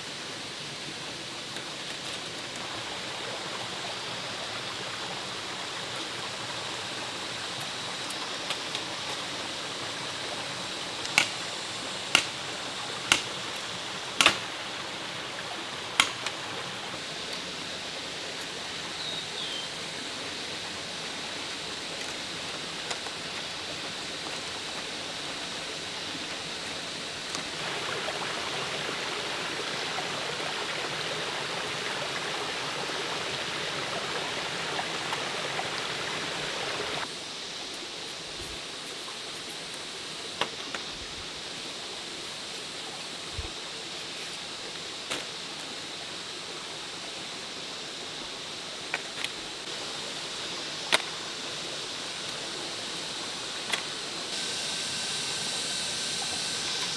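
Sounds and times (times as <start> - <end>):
running water rushing: 0.0 - 56.9
sharp clicks and knocks: 13.1 - 13.4, 14.2 - 14.4, 16.0 - 16.4.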